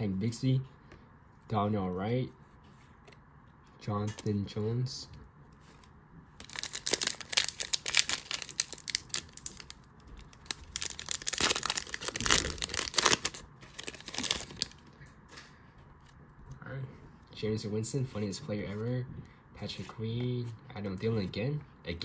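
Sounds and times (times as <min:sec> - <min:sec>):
foil wrapper crackling: 0:06.4 - 0:14.8.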